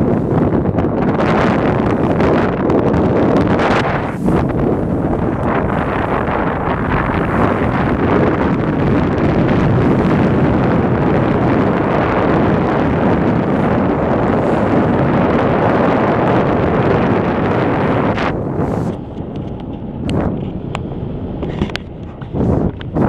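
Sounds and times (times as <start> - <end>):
water: 0.0 - 23.0
wind buffeting microphone: 0.0 - 23.0.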